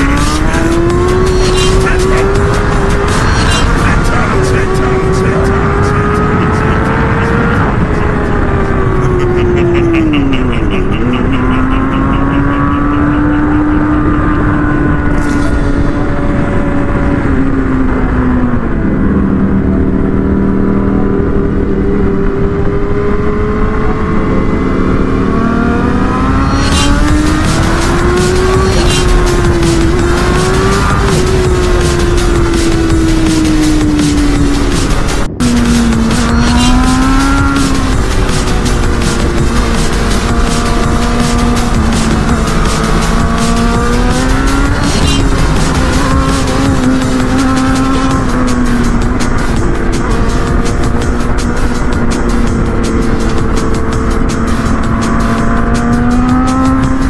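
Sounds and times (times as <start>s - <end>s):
motorcycle engine running: 0.0s - 57.0s
rapid high ticking: 26.5s - 57.0s.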